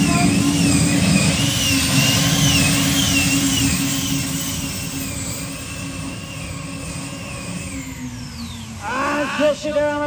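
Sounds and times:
turbine tractor whine and rumble: 0:00.0 - 0:10.0.

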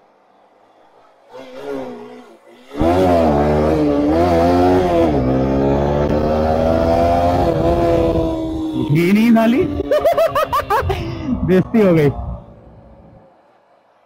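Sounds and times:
motorcycle engine accelerating: 0:02.7 - 0:13.4.

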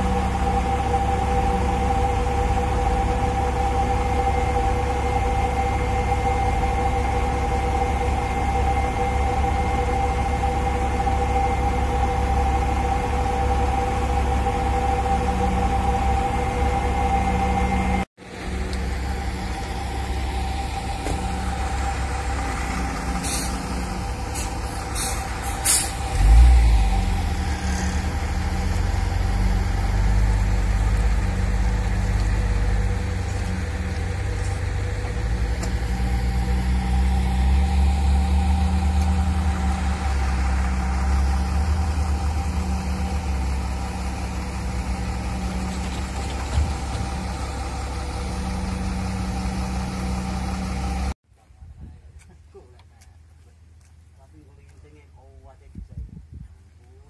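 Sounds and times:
heavy diesel truck engines: 0:00.0 - 0:51.2
short air hisses: 0:23.2 - 0:23.6, 0:24.3 - 0:26.2.

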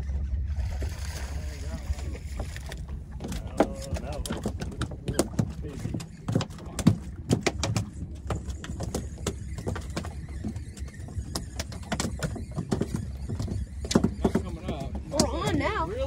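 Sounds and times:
low rumble: 0:00.0 - 0:10.1.

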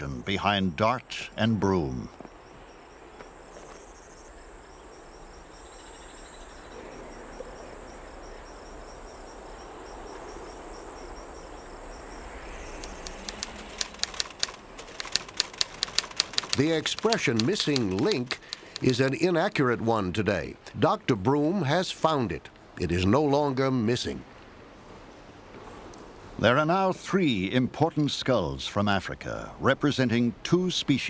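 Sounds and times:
crickets chirping: 0:00.0 - 0:19.4
soft background hiss: 0:00.0 - 0:31.0
typewriter keys clacking: 0:12.8 - 0:19.2.

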